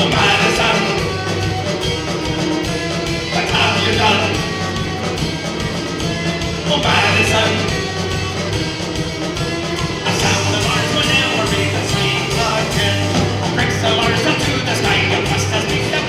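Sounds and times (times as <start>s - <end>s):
man singing into a microphone: 0.0s - 1.2s, 3.4s - 4.6s, 6.7s - 7.8s, 10.0s - 16.0s
punk band playing live: 0.0s - 16.0s.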